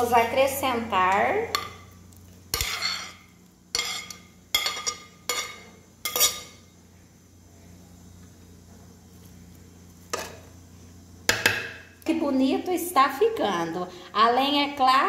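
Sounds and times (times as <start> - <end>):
metal spoon scraping a plate: 2.5 - 6.6.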